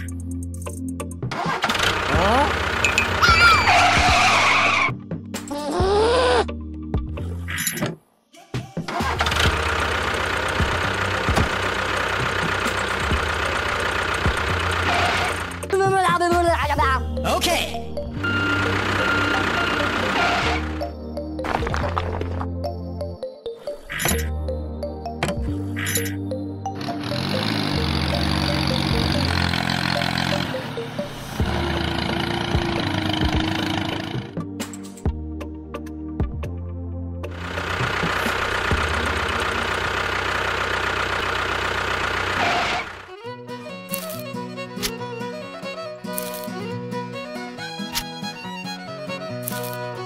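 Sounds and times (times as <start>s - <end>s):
background music: 0.0s - 40.9s, 43.0s - 50.0s.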